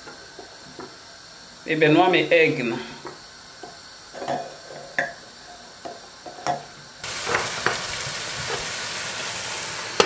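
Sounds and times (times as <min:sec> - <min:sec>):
stew sizzling in a pot: 0:00.0 - 0:10.0.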